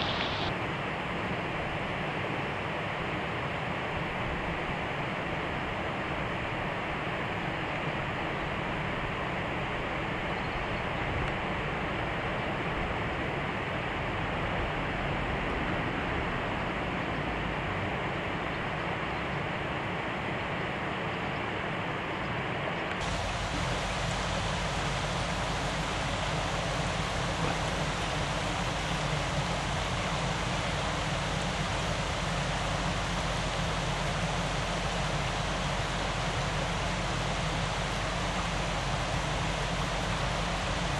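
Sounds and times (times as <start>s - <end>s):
river water rushing over rocks: 0.0s - 8.1s, 23.0s - 40.9s.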